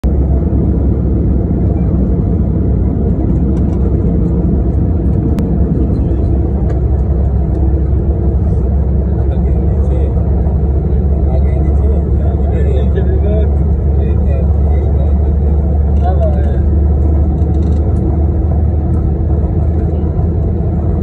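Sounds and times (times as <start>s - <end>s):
jet engines rumbling: 0.0s - 21.0s.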